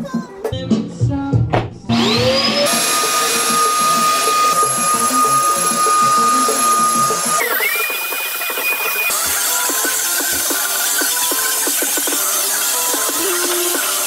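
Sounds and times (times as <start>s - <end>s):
vacuum cleaner high whistle: 1.9s - 10.3s
vacuum cleaner motor whine: 1.9s - 14.0s.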